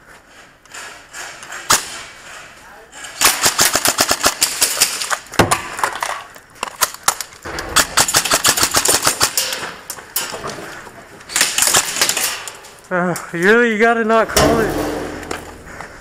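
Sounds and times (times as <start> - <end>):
airsoft guns firing: 3.2 - 5.8, 7.5 - 9.6, 11.3 - 12.5.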